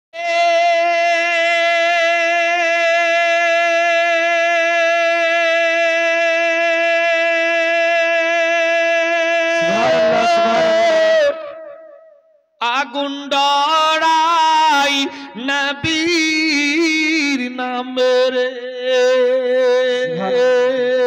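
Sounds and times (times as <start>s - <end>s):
man singing long high note: 9.6s - 11.7s.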